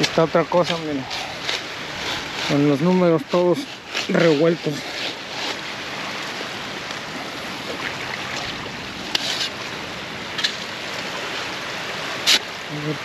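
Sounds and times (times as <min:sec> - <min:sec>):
shovel scraping soil: 0:00.0 - 0:05.8, 0:09.1 - 0:09.6.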